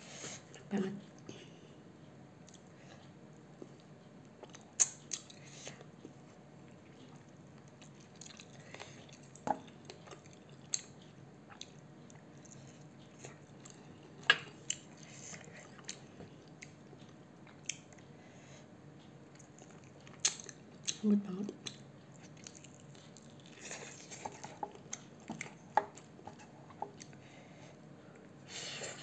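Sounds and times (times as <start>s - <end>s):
person chewing chicken wing: 6.9s - 18.1s, 21.6s - 27.2s.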